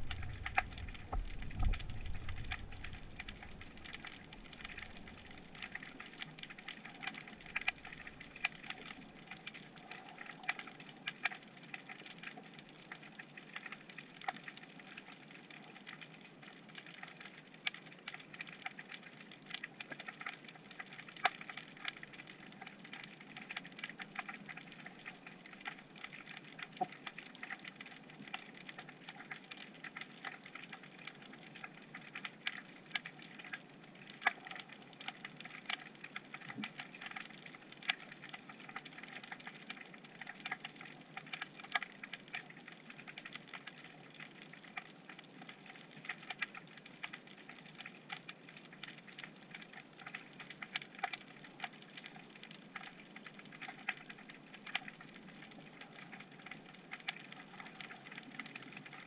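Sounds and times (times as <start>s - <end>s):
low hiss: 0.0s - 8.4s
underwater crackling clicks: 0.0s - 59.0s.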